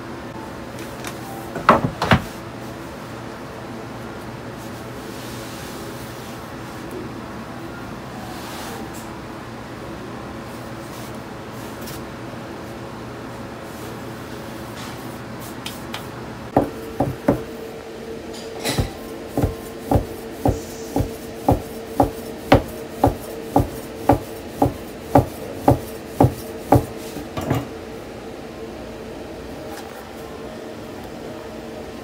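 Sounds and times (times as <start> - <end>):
knife chopping on wooden board: 16.6 - 17.5, 18.8 - 27.0.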